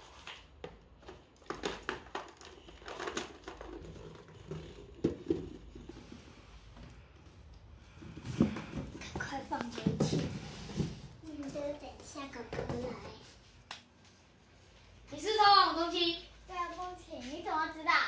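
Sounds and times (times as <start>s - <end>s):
box scraping on wooden floor: 9.8s - 11.2s.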